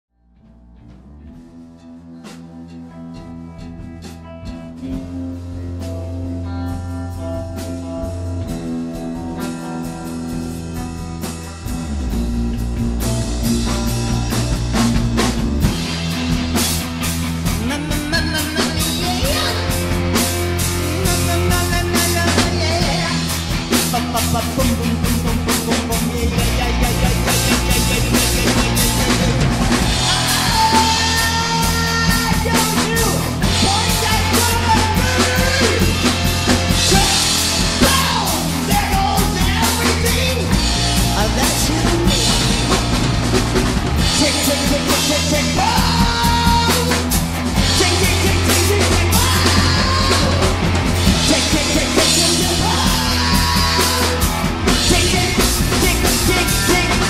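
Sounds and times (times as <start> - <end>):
rock band playing: 0.2 - 57.0
drum kit pounding: 0.3 - 57.0
person singing: 17.4 - 57.0.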